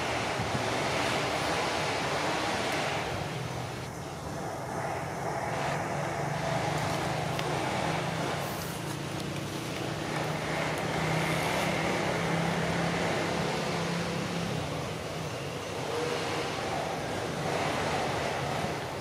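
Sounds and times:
distant traffic hum: 0.0 - 19.0.

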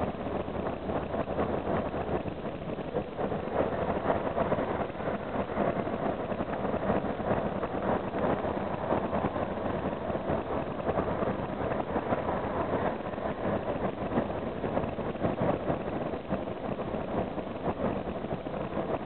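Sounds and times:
bus engine and road noise: 0.0 - 19.0.

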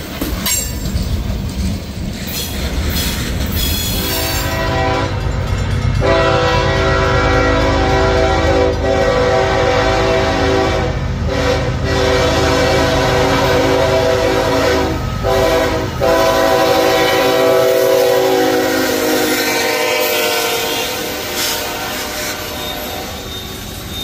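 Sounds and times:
freight cars rolling and clacking: 0.0 - 11.4
locomotive horn blasts: 4.0 - 5.2, 6.0 - 24.0.

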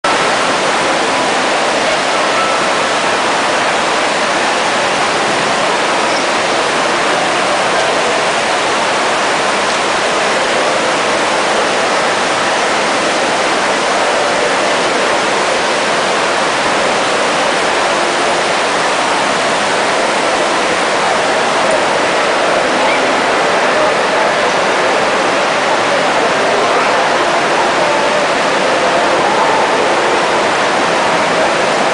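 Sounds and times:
fountain water splashing: 0.0 - 31.9
murmur of voices: 0.0 - 31.9.

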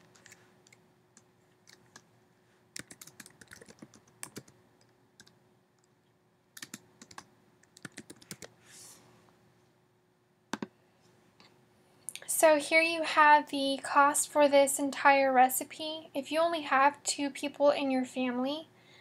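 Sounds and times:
typing on computer keyboard: 2.8 - 5.9, 6.6 - 8.5.

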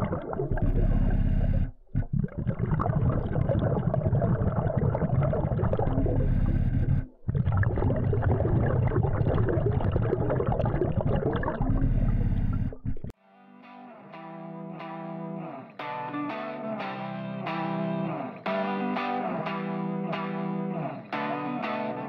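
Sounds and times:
underwater bubbles gurgling: 0.0 - 13.2.

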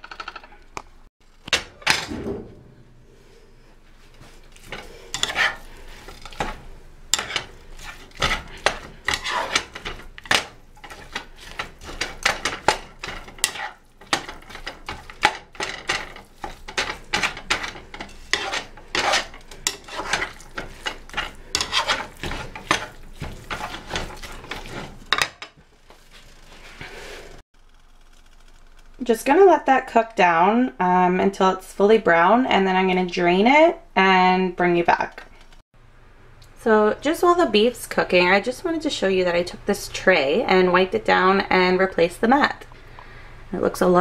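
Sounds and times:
utensil scraping skillet: 3.1 - 27.4
meat sizzling: 4.5 - 27.4.

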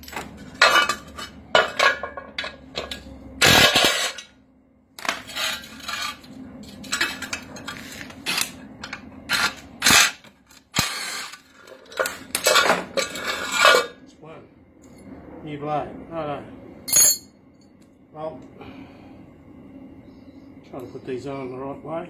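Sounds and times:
metal parts clinking on concrete: 0.0 - 4.4, 16.9 - 17.4.

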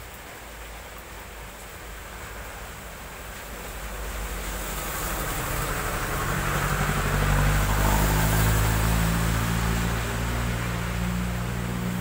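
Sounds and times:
tyres hissing on wet road: 0.0 - 12.0
truck engine passing: 4.4 - 12.0
motorcycle passing: 5.0 - 12.0.

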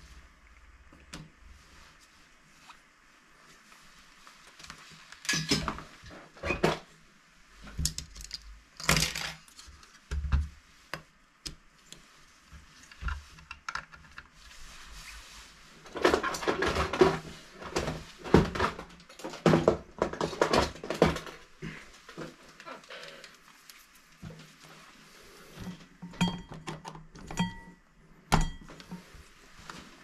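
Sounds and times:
cable rustling: 11.8 - 26.0.

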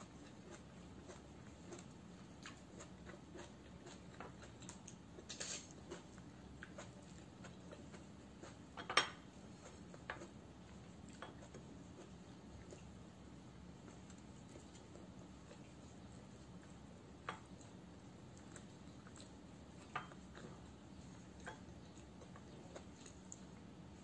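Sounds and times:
scrape on a plate: 5.3 - 5.7.

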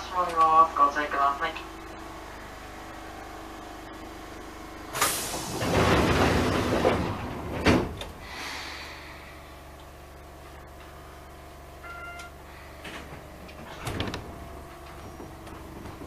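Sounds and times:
steady low hum: 0.0 - 5.0, 7.1 - 16.0
train door thud: 4.9 - 8.3, 12.8 - 16.0
compressed air hissing: 8.2 - 9.4.

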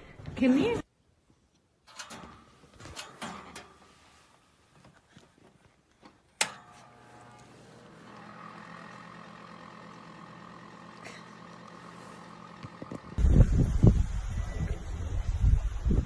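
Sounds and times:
heater switch click: 6.4 - 7.5
space heater hum and whine: 6.4 - 15.9
wind noise on microphone: 13.2 - 16.0.

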